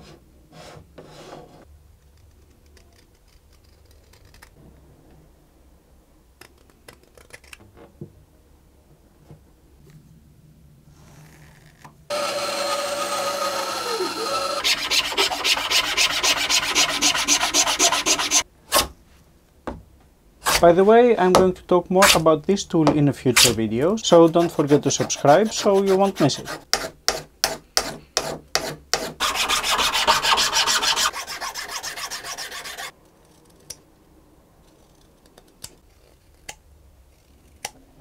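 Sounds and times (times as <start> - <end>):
filing strokes on wood: 12.1 - 18.4, 24.1 - 32.9
loud rubbing with squeal: 12.1 - 18.4, 29.2 - 32.9.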